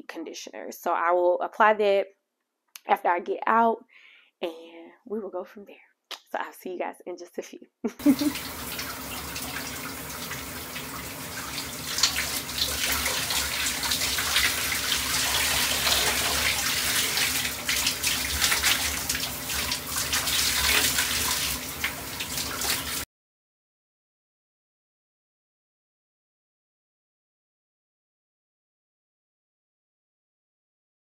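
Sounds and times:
shower water running and splashing: 0:08.0 - 0:23.1.

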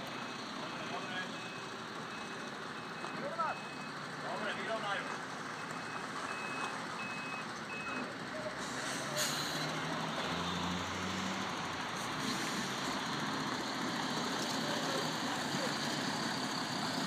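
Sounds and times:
truck reversing alarm beeps: 0:00.0 - 0:08.5
diesel engine running: 0:00.0 - 0:17.0
air brakes hiss: 0:08.6 - 0:09.7.

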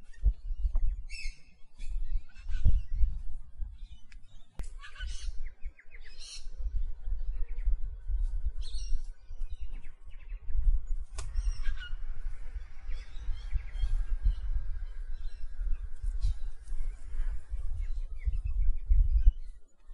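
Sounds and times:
birds squawking and chirping: 0:00.5 - 0:07.8, 0:08.6 - 0:19.6
low fluctuating rumble: 0:05.2 - 0:19.7.

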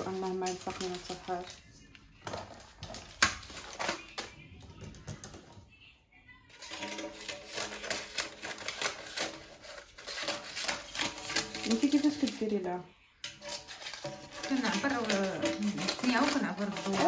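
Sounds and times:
utensils clicking on baking mould: 0:00.0 - 0:01.6, 0:06.6 - 0:17.0.

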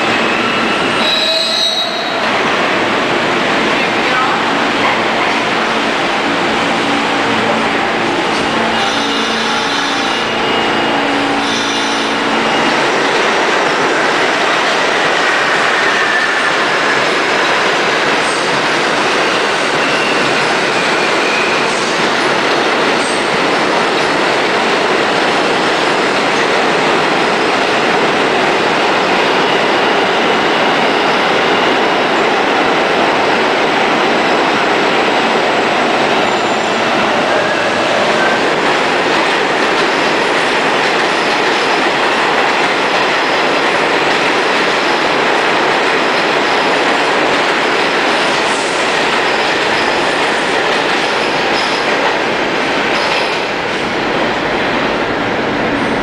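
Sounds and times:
subway train motor whine: 0:00.0 - 0:43.2
train cars rolling on rails: 0:00.0 - 0:56.0.

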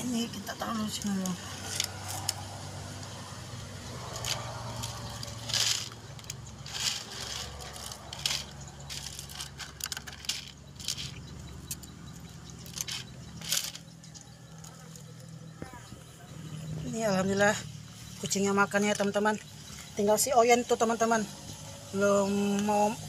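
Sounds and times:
plastic containers crackling: 0:03.7 - 0:13.9.

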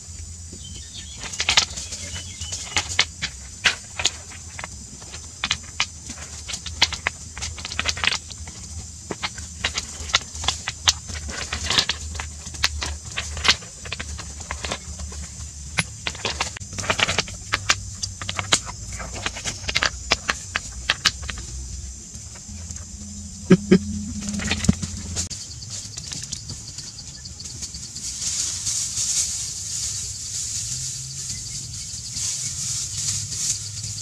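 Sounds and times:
stones clacking together: 0:01.0 - 0:21.5
low hum: 0:16.8 - 0:25.3.

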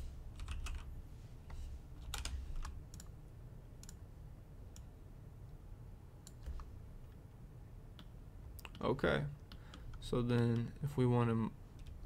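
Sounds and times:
low steady hum: 0:00.0 - 0:12.0
keyboard typing: 0:00.4 - 0:00.9, 0:02.0 - 0:03.1.

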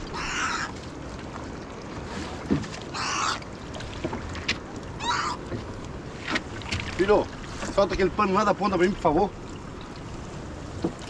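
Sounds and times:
water splashing: 0:00.0 - 0:11.0
dull knock against boat: 0:02.4 - 0:02.8.

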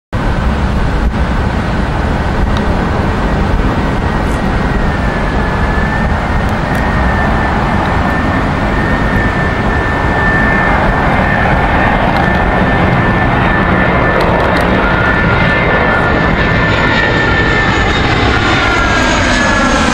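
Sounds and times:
jet engines rushing with whine: 0:00.2 - 0:19.9.

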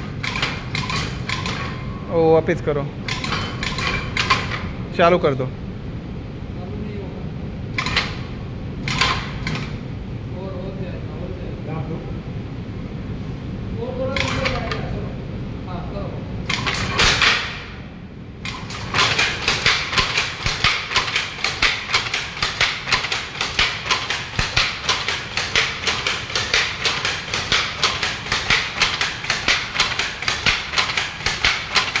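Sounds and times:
loom clacking: 0:00.0 - 0:01.9, 0:03.0 - 0:04.7, 0:07.8 - 0:08.2, 0:08.8 - 0:09.8, 0:14.2 - 0:14.9, 0:16.5 - 0:17.7, 0:18.4 - 0:32.0.

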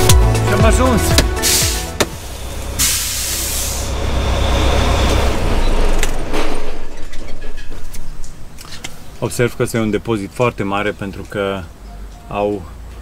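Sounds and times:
truck engine rumble: 0:00.0 - 0:13.0
air brakes hissing: 0:01.3 - 0:05.3.

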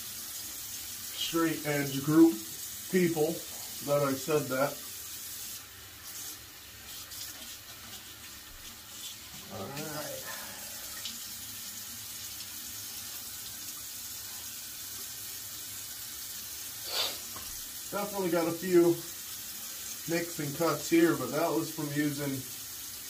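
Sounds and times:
man's voice: 0:09.5 - 0:10.4, 0:18.0 - 0:19.0, 0:20.1 - 0:22.4
tap water splashing into sink: 0:17.2 - 0:17.7.

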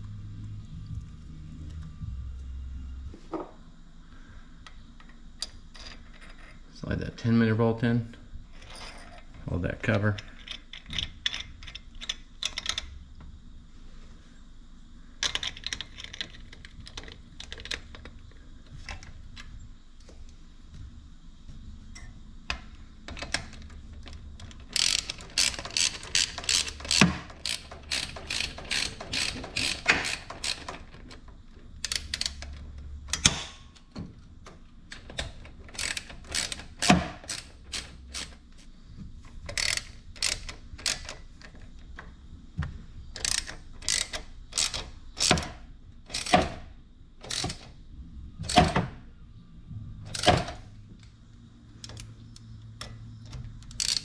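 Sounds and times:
ratchet wrench clicking: 0:24.7 - 0:30.9, 0:31.8 - 0:33.3, 0:35.7 - 0:38.4, 0:39.5 - 0:41.2, 0:43.2 - 0:45.5, 0:46.1 - 0:46.5, 0:47.2 - 0:47.6, 0:50.1 - 0:50.6, 0:53.6 - 0:54.0.

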